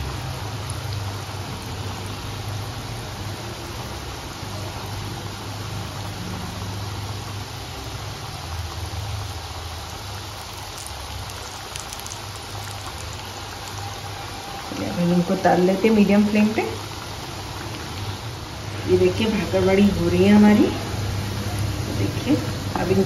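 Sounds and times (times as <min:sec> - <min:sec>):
food sizzling in hot oil: 0:00.0 - 0:23.0
light crackles: 0:10.2 - 0:14.2.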